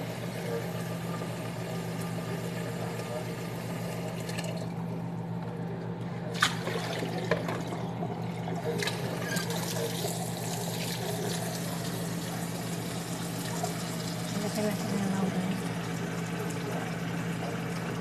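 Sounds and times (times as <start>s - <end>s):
steady low hum: 0.0s - 18.0s
tap water pouring into pot: 6.3s - 18.0s.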